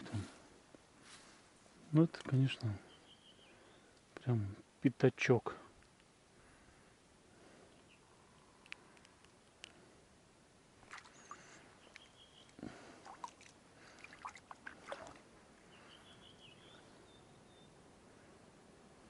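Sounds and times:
faint bird chirping: 0:02.3 - 0:04.7, 0:06.3 - 0:09.1, 0:10.9 - 0:13.4, 0:15.6 - 0:18.5.

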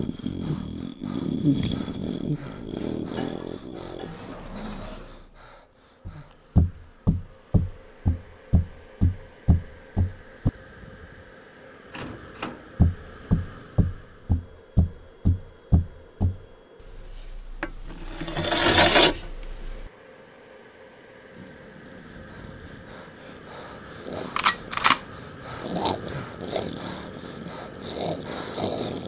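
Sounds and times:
faint steady hum: 0:00.0 - 0:29.0
low thumps: 0:06.1 - 0:10.5, 0:12.8 - 0:16.5
hiss: 0:20.5 - 0:29.0.

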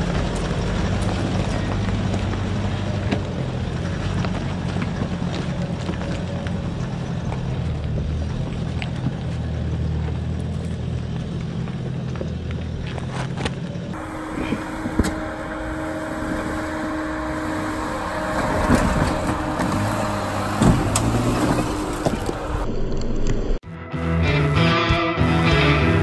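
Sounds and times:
tyres crunching over rock: 0:00.0 - 0:14.0
diesel engine: 0:00.0 - 0:23.6
petrol engine working uphill: 0:00.0 - 0:23.6.

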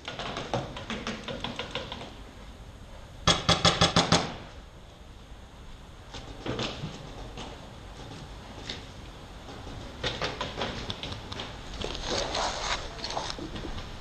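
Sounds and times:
paintball marker rapid shots: 0:03.3 - 0:04.4.

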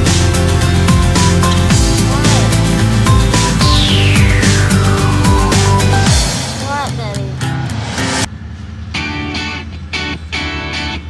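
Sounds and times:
music with drum beat and bass: 0:00.0 - 0:08.3.

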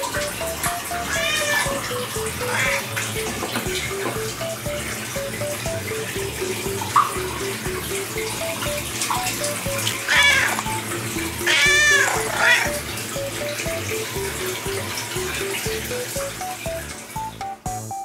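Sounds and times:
light background music: 0:00.0 - 0:18.0
cat meowing: 0:01.0 - 0:02.9, 0:10.0 - 0:10.8, 0:11.4 - 0:12.8.

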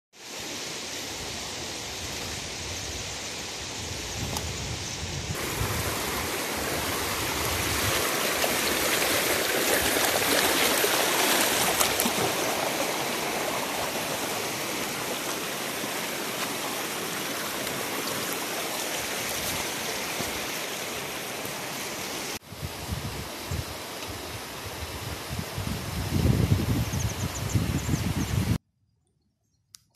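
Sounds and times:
river rushing over stones: 0:05.4 - 0:25.1.

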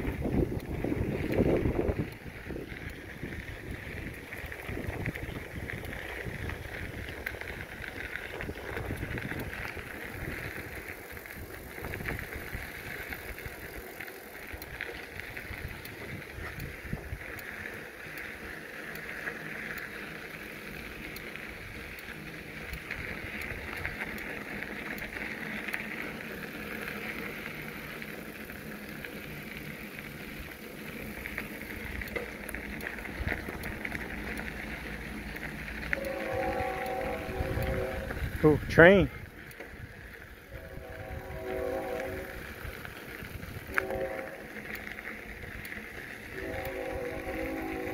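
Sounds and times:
wind rumbling on microphone: 0:00.0 - 0:18.7, 0:20.9 - 0:47.9
bicycle tyres rolling on trail: 0:00.0 - 0:47.9.

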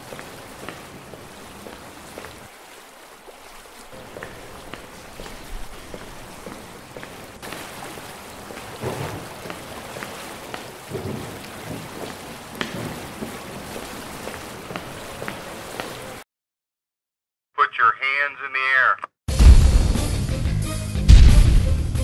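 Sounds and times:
rain falling: 0:00.0 - 0:16.2
thunder rumbling: 0:07.6 - 0:14.3.

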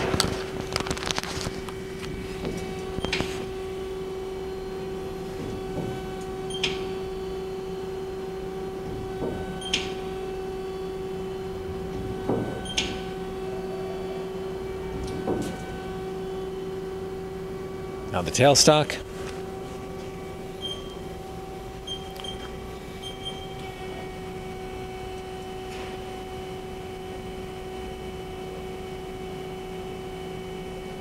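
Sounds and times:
lathe turret whirring: 0:00.0 - 0:30.8
machine hum: 0:00.0 - 0:31.0.

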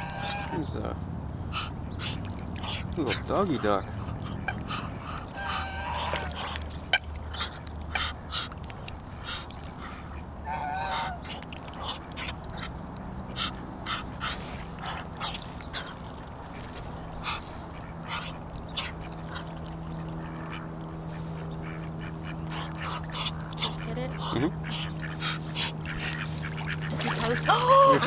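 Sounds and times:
duck warbling call: 0:00.0 - 0:00.6, 0:01.5 - 0:08.5, 0:10.4 - 0:12.7
low hum: 0:00.0 - 0:28.0
duck huffing: 0:01.5 - 0:06.6, 0:17.2 - 0:19.4, 0:22.2 - 0:26.5.

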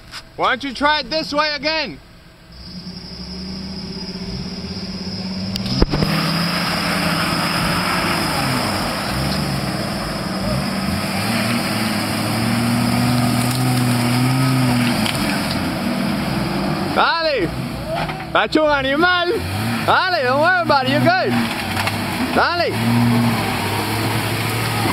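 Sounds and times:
engine revving under load: 0:02.5 - 0:18.0, 0:18.7 - 0:24.9
tyres churning through mud: 0:02.6 - 0:24.9
sharp crack: 0:05.5 - 0:09.5, 0:11.0 - 0:15.8, 0:21.2 - 0:22.6.

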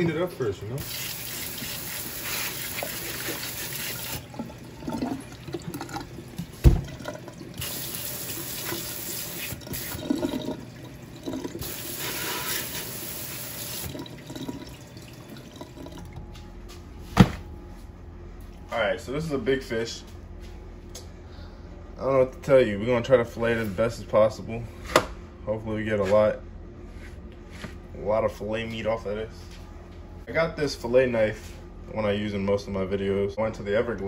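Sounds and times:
sprayer spraying water into sink: 0:00.8 - 0:04.2, 0:07.6 - 0:10.1, 0:11.6 - 0:14.1.

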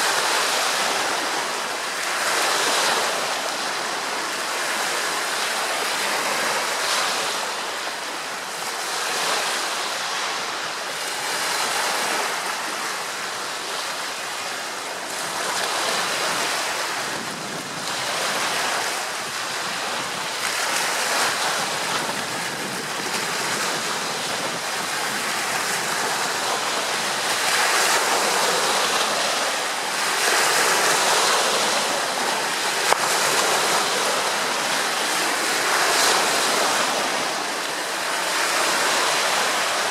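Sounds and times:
waves slapping and splashing: 0:00.0 - 0:39.9
wind on microphone: 0:08.5 - 0:39.9.

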